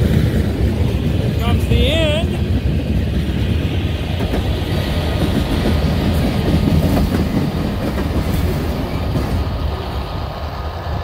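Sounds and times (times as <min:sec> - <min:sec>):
freight train cars rolling past: 0:00.0 - 0:11.0
steel wheels clacking over rail joints: 0:00.0 - 0:11.0.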